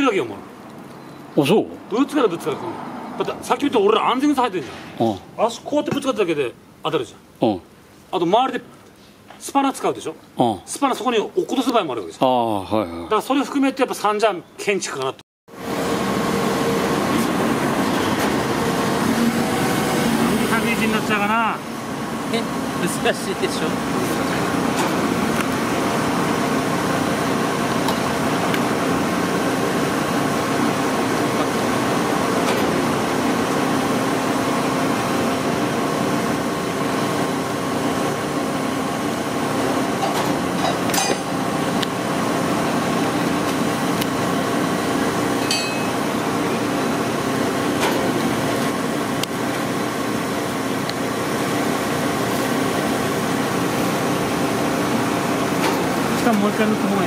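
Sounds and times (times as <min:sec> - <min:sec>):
machinery drone: 0:15.6 - 0:40.7.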